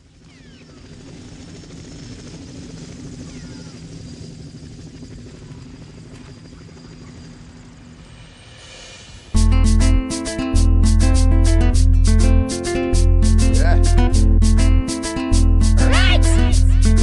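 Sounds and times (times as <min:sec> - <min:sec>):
low rumbling drone: 0:10.6 - 0:17.0.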